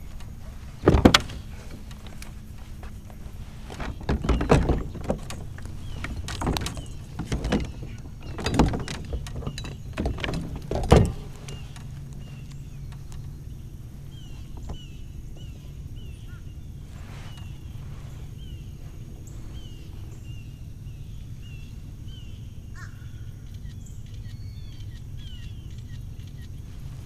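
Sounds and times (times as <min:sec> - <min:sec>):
gear knocking in plastic kayak: 0:00.0 - 0:16.4
bird chirping: 0:00.0 - 0:27.0
steady low hum: 0:00.0 - 0:27.0.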